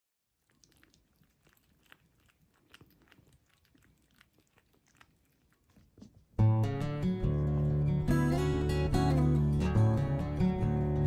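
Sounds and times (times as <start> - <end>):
cats chewing and smacking: 0.3 - 6.4.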